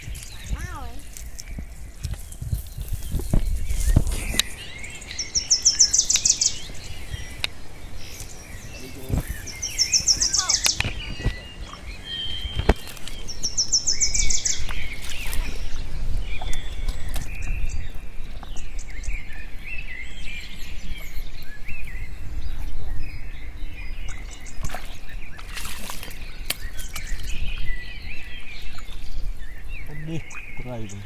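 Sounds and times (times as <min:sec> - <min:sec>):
small birds chirping: 0:00.0 - 0:31.0
bird trill: 0:03.2 - 0:17.9.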